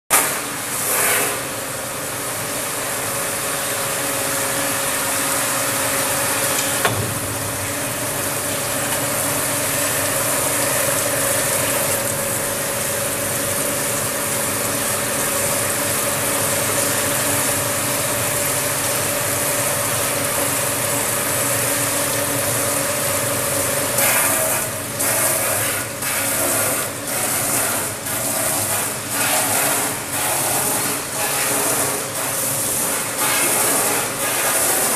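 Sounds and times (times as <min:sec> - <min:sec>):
machine whirring and hissing: 0:00.2 - 0:12.2, 0:23.9 - 0:34.9.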